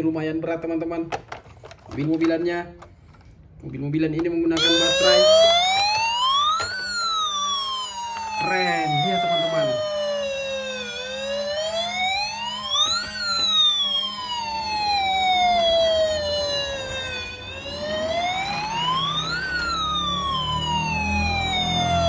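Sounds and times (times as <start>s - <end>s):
toy siren wailing: 4.6s - 22.0s.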